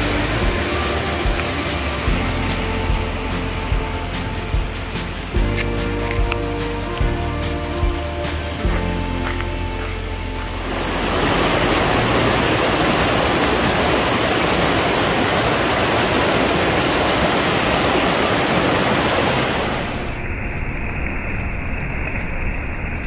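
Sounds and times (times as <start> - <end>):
rushing water: 0.0 - 20.3.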